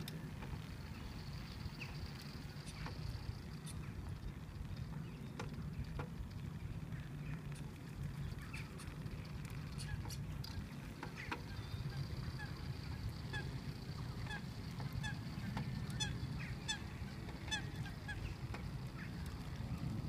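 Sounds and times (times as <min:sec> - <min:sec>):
low steady rumble: 0:00.0 - 0:20.0
geese honking: 0:11.2 - 0:19.2.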